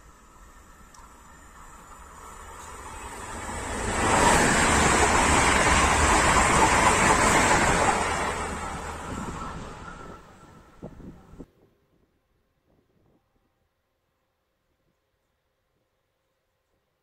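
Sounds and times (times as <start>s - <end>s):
train passing at speed: 0.0s - 11.5s.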